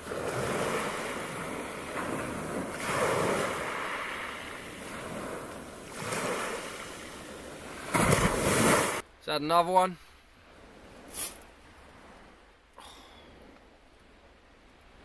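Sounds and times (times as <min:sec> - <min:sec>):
waves washing over shingle: 0:00.0 - 0:09.0.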